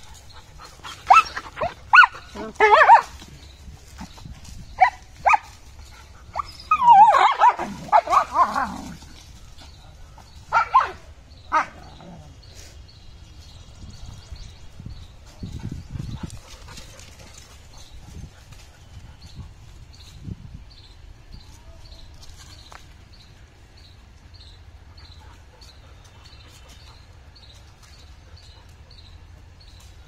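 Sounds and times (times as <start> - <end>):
puppies barking and yelping: 0.0 - 3.3, 4.8 - 9.0, 10.2 - 12.0.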